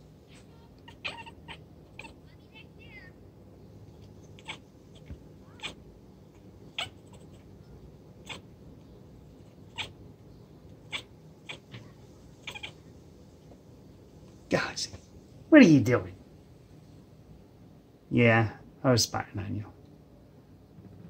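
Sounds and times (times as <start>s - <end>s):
cat chirping: 0.3s - 3.2s, 4.0s - 10.0s, 10.7s - 12.9s.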